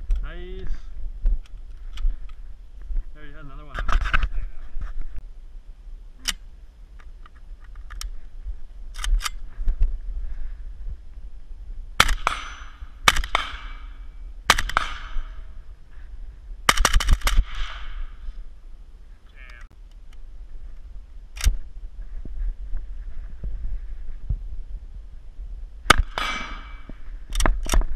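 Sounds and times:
rifle handling clicks: 0:08.9 - 0:09.4
rifle shots echoing: 0:12.0 - 0:15.5, 0:16.7 - 0:18.2, 0:25.9 - 0:26.9.

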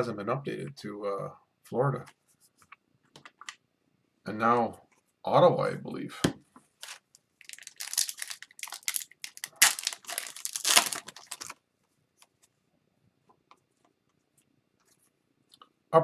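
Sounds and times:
foil wrapper tearing and crinkling: 0:06.8 - 0:11.6.

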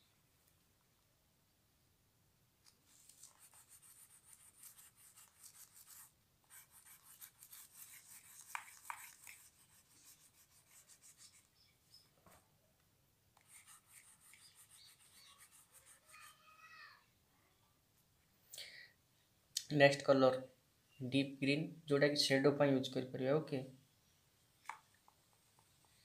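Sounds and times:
crayon scratching on paper: 0:02.9 - 0:11.6, 0:13.4 - 0:16.4.

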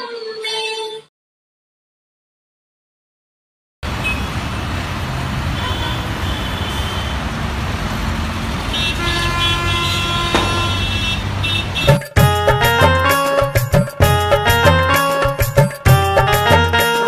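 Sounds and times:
engine and road noise: 0:03.8 - 0:13.3
vehicle horns honking: 0:03.9 - 0:04.5, 0:05.5 - 0:07.2, 0:08.7 - 0:17.0.

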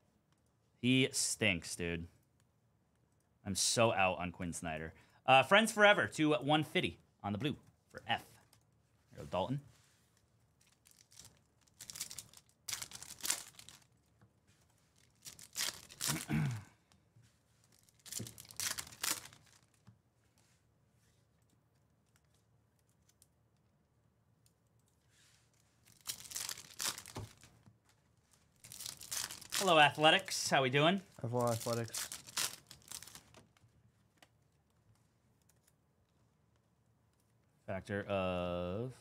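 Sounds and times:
foil wrappers crinkling and tearing: 0:10.6 - 0:14.1, 0:14.9 - 0:16.4, 0:17.6 - 0:19.8, 0:25.8 - 0:27.6, 0:28.5 - 0:30.4, 0:31.1 - 0:33.4.

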